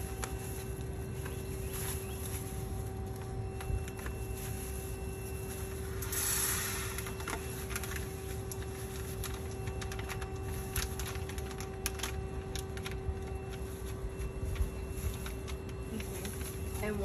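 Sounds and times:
low machine hum: 0.0s - 17.0s
popcorn kernels rattling into kettle: 6.0s - 13.6s.

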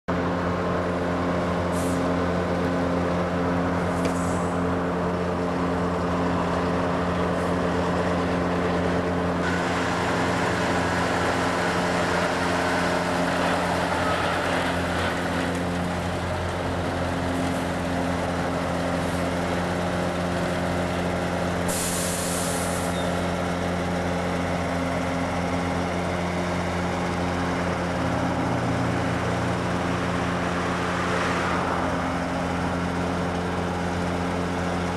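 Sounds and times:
heavy diesel engine running: 0.1s - 34.9s
air brake hiss: 1.7s - 2.1s, 4.0s - 4.6s, 21.7s - 23.1s.

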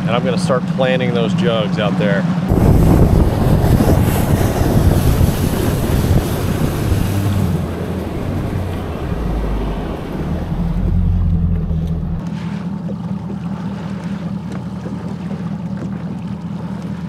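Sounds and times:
outboard motor running: 0.0s - 17.0s
water rushing past hull: 0.1s - 17.0s
wind on microphone: 2.5s - 12.2s.

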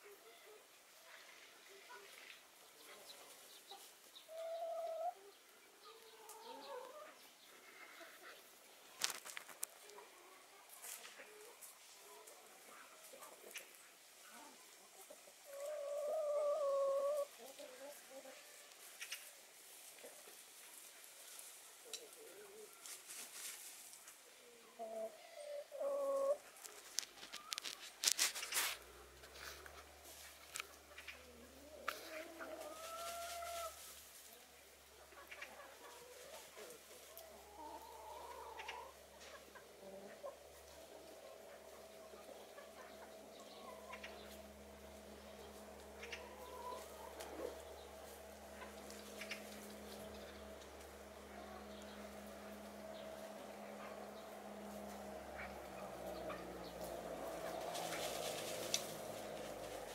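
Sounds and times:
hens calling softly: 0.0s - 9.1s, 9.7s - 20.4s, 21.1s - 27.8s, 28.4s - 59.9s
scratching and rustling of litter: 8.9s - 9.9s, 22.7s - 24.2s, 26.5s - 30.8s, 53.9s - 59.9s.

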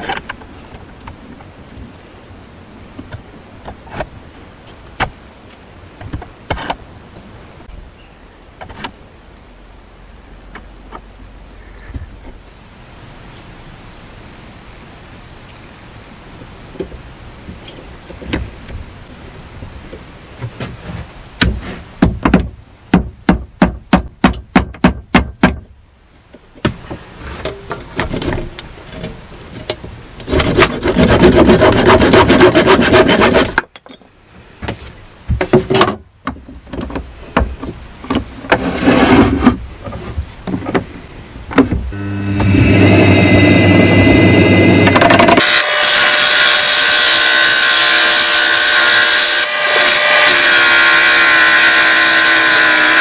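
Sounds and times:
continuous rubbing on wood: 26.4s - 33.6s
saw or file rasping on wood: 30.2s - 33.6s.

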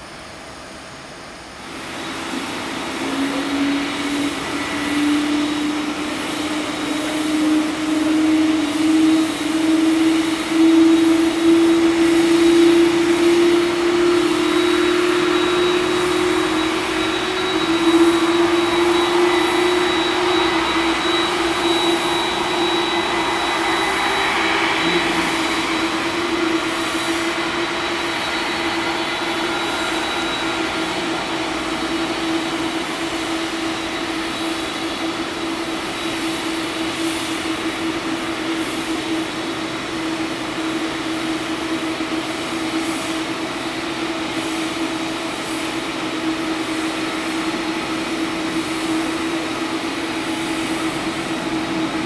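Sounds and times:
jet engines whining: 0.0s - 52.0s.

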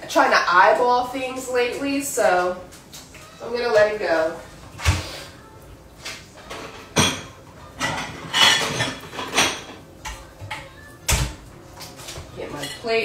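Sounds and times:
dishes clinking: 6.4s - 11.4s, 12.1s - 13.0s.

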